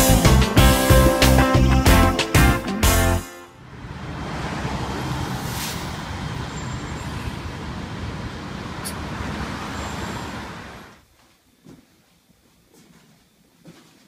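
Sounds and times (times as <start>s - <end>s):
traffic engine and tyre rumble: 3.6s - 11.0s.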